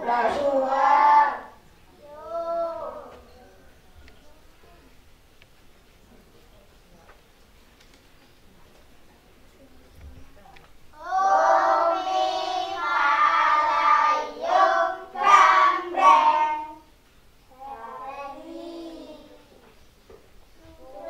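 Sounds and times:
girls singing together: 0:00.0 - 0:03.2, 0:11.0 - 0:16.9.

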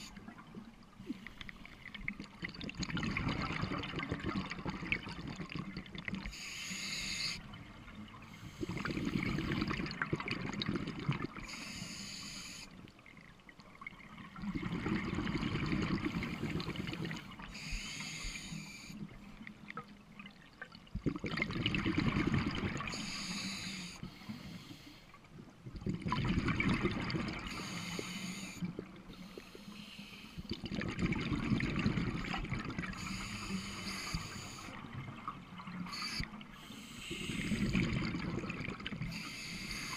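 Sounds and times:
bubbling underwater exhale: 0:01.1 - 0:06.4, 0:08.3 - 0:11.6, 0:14.3 - 0:18.3, 0:21.0 - 0:24.4, 0:25.8 - 0:29.3, 0:30.4 - 0:39.9
scuba regulator hissing inhale: 0:06.3 - 0:07.4, 0:08.3 - 0:09.6, 0:11.4 - 0:12.8, 0:16.0 - 0:19.1, 0:22.9 - 0:25.2, 0:27.5 - 0:30.5, 0:32.9 - 0:34.8, 0:35.8 - 0:38.0, 0:39.0 - 0:39.9.

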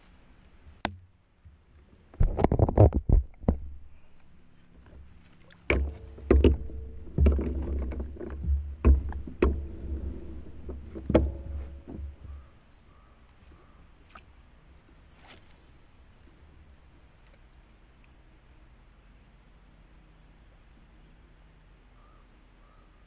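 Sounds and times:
low rumbling: 0:01.5 - 0:13.8
knocks on plastic kayak hull: 0:05.7 - 0:12.5.

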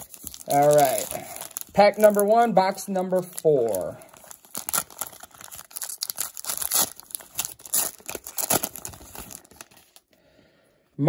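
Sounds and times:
foil wrapper crackling: 0:00.0 - 0:10.1.

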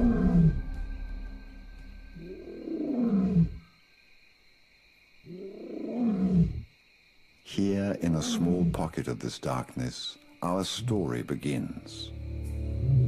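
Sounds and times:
lion roaring: 0:00.0 - 0:00.7, 0:02.2 - 0:03.7, 0:05.3 - 0:06.7, 0:08.0 - 0:08.8
faint high whine: 0:00.0 - 0:04.6.

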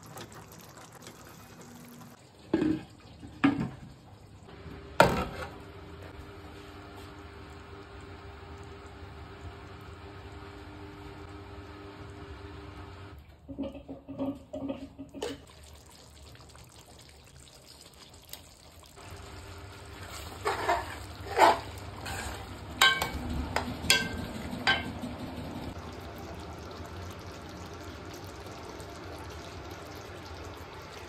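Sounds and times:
simmering sizzle: 0:00.0 - 0:13.9, 0:14.6 - 0:31.0
ladle scraping pan: 0:20.0 - 0:23.2.

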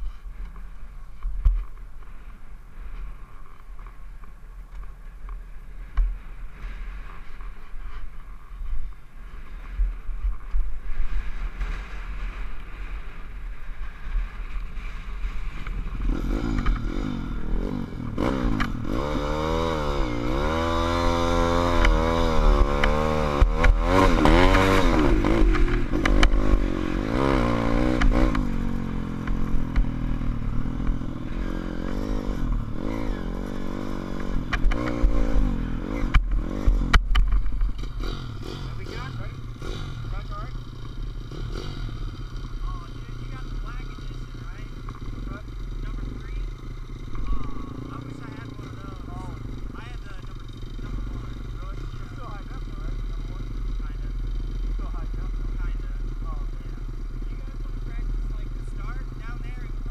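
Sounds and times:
wind rumbling on microphone: 0:00.0 - 0:40.4
motorbike engine revving: 0:11.1 - 0:59.9.

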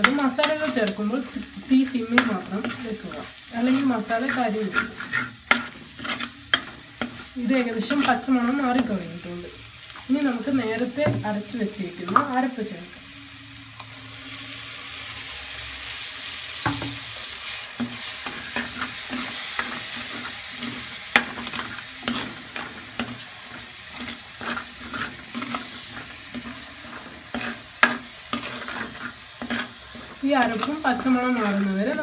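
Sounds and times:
paste sizzling in hot oil: 0:00.0 - 0:32.0
spoon scraping clay pot: 0:02.2 - 0:08.9, 0:17.9 - 0:32.0.

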